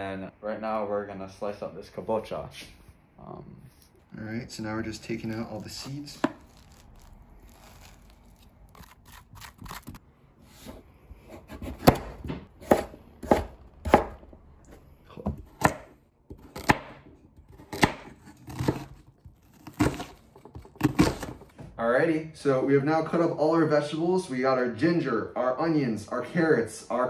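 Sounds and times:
spoon scraping squash seeds: 4.8s - 10.0s
knife chopping on plastic board: 11.3s - 14.3s, 15.3s - 21.4s.

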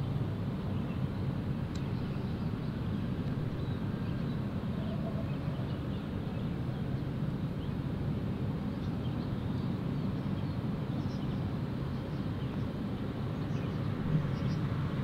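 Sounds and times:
low outdoor rumble: 0.0s - 15.0s.

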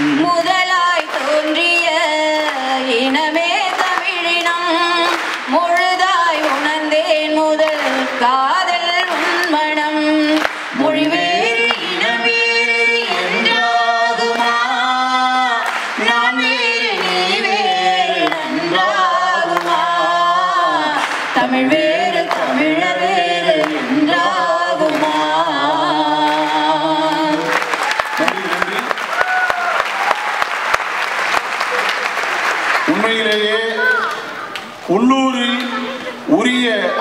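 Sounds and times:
man and woman singing unaccompanied: 0.0s - 28.8s.

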